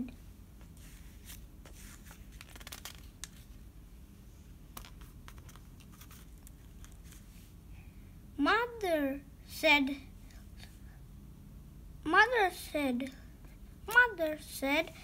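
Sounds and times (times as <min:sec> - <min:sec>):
book page rustling and crackling: 0:00.6 - 0:03.6, 0:04.7 - 0:07.5.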